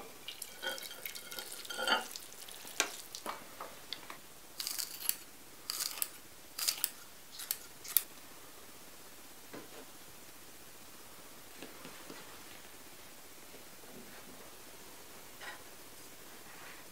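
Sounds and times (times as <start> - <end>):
utensils clinking on dishes: 0.4 - 2.9.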